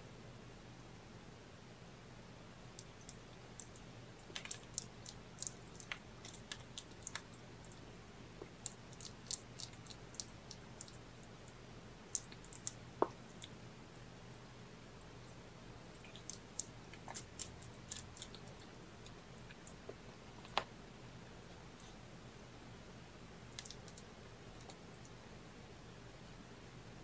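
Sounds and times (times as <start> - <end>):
kitten suckling wet clicks: 2.8 - 13.6, 16.0 - 20.0, 23.5 - 25.1.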